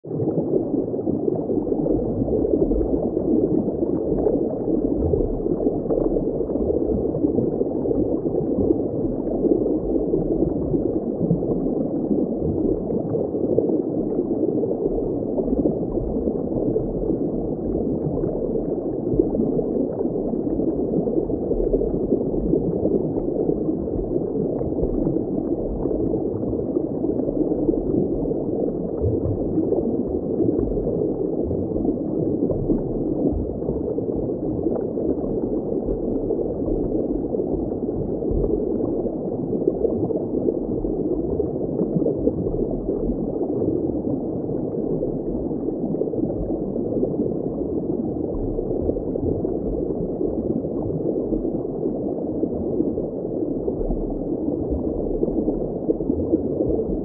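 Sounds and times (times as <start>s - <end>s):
muffled underwater water rush: 0.0s - 57.0s.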